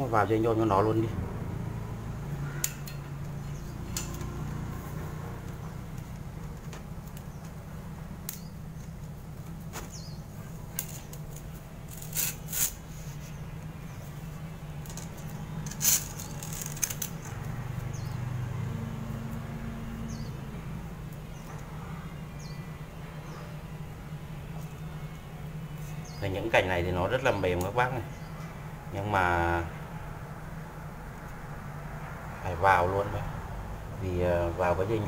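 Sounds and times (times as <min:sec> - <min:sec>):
steady low hum: 0:00.0 - 0:35.0
wire scraping against bark: 0:02.5 - 0:07.6, 0:08.2 - 0:18.2.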